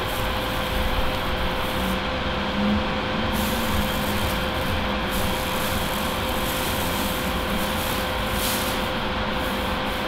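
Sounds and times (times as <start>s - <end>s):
extractor fan running: 0.0s - 10.0s.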